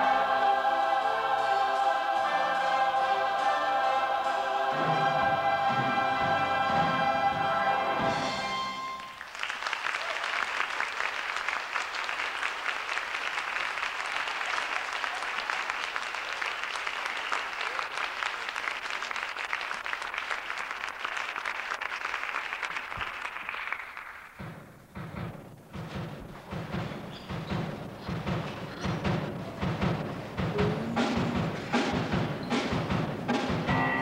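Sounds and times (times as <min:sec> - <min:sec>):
choir holding a chord: 0:00.0 - 0:09.0
audience applauding: 0:07.8 - 0:24.6.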